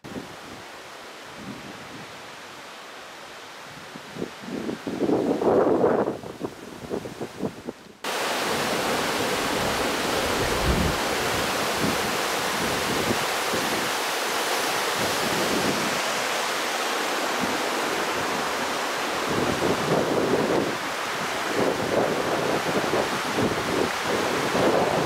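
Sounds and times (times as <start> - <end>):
waterfall rushing over rocks: 8.0 - 25.0.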